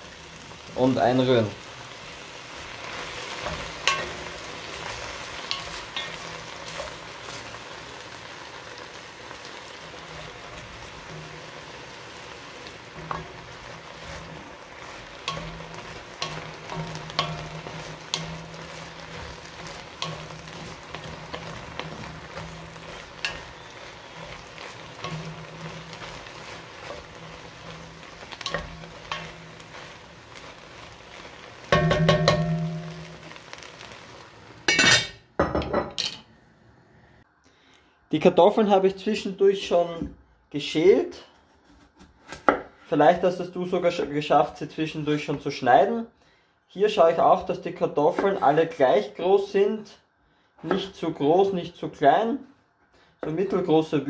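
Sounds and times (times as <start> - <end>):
onions sizzling in a pot: 0.0 - 36.2, 46.8 - 49.6, 50.6 - 52.2.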